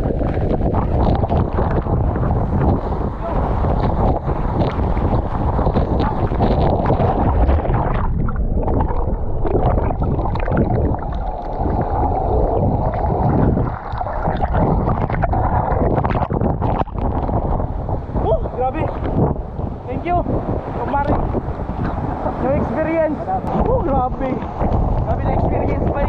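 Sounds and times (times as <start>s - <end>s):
water churning and bubbling: 0.0s - 26.0s.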